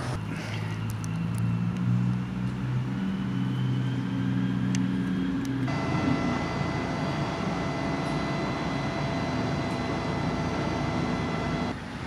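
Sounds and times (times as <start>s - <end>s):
background traffic hum: 0.0s - 12.0s
faint steady high tones: 5.7s - 11.8s.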